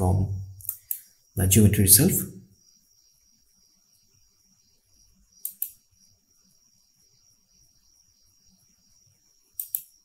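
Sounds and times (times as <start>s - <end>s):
faint high-pitched whine: 0.0s - 10.0s
computer mouse double-click: 5.4s - 5.8s, 9.6s - 9.9s.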